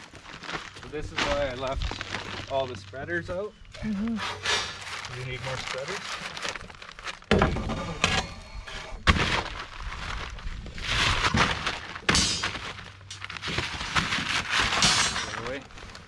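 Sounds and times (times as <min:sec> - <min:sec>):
metal bars scraping: 0:14.7 - 0:15.6.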